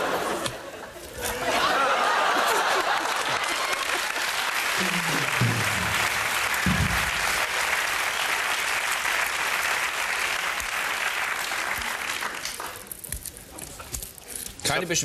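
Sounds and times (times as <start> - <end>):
audience applauding: 1.4 - 13.0.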